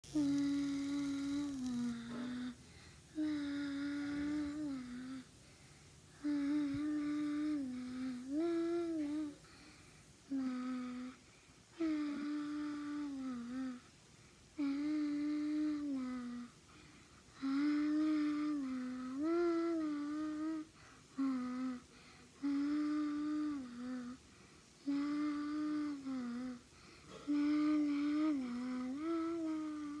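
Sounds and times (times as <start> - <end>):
girl singing wordless tune: 0.0 - 5.4, 6.2 - 13.9, 14.6 - 30.0.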